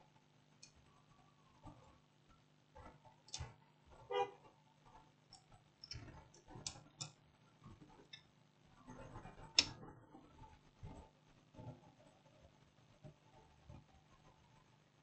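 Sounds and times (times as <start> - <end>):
small components clicking and tapping: 5.3 - 8.4.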